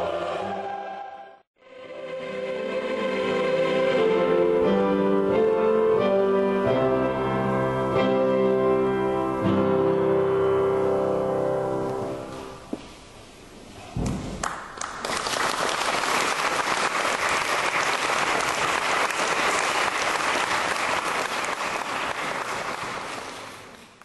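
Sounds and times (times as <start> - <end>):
music: 0.0 - 12.7
thump: 14.0 - 14.4
audience applauding: 14.4 - 24.0.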